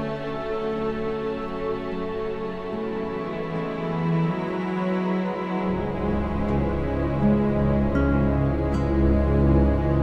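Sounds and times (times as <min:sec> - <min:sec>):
slow sustained background music: 0:00.0 - 0:10.0.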